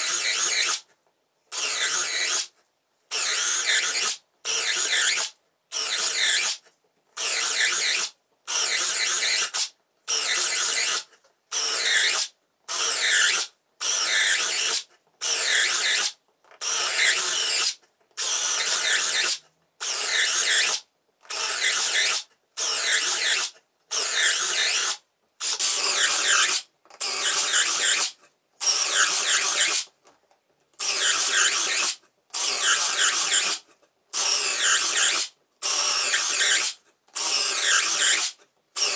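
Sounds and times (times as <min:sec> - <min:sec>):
cordless drill boring through wood: 0:11.6 - 0:29.8, 0:30.8 - 0:33.6, 0:34.2 - 0:38.9.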